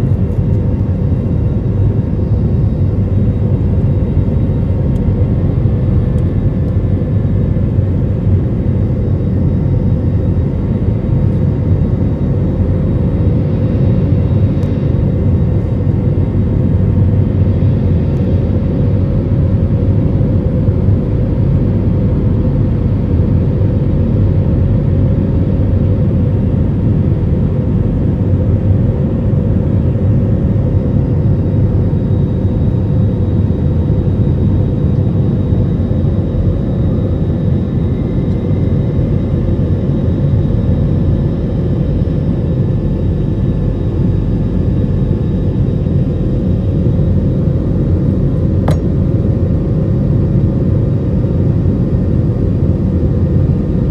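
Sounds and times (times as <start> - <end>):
jet engines rumbling: 24.2 - 53.9
steady cabin hum: 30.2 - 50.7.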